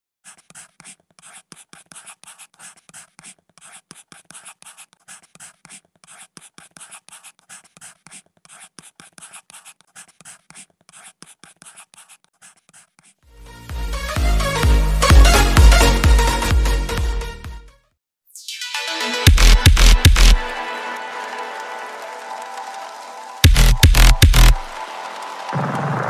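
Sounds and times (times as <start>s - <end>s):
pen scratching on paper: 0.2s - 13.2s, 23.4s - 24.7s.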